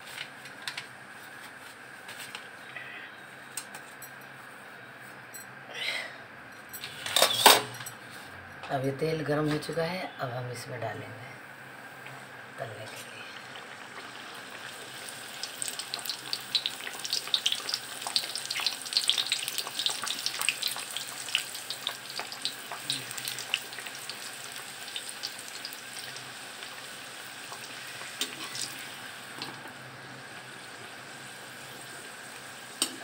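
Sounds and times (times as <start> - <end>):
food deep-frying with crackling pops: 13.0 - 33.0.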